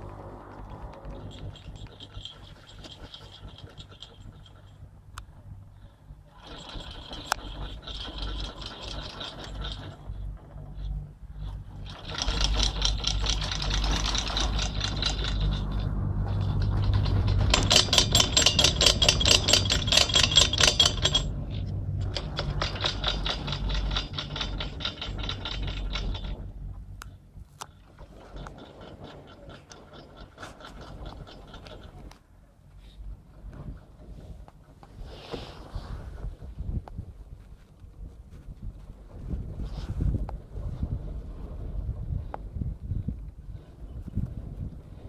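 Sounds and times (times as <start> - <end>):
low rumble: 0.0 - 45.0
chairlift rope rattling clatter: 0.1 - 5.5, 6.3 - 32.3.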